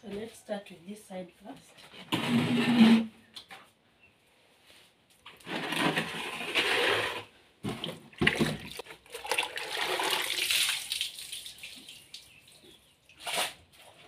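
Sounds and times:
water splashing onto floor: 8.2 - 12.4.

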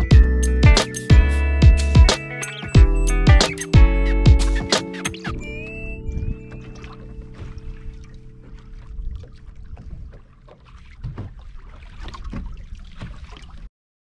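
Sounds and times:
wind on microphone: 5.3 - 8.1
knocks and splashes: 6.3 - 13.7
water slapping against boat hull: 6.6 - 13.7.

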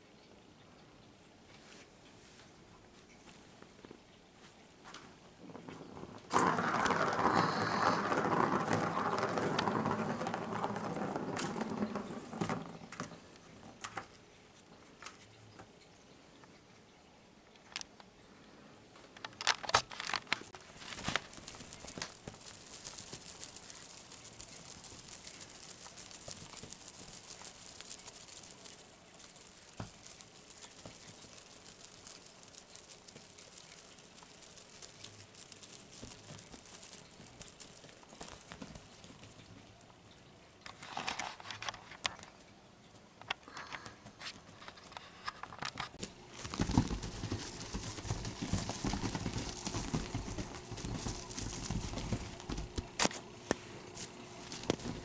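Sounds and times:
kitten scuffling on blanket: 46.2 - 55.0.

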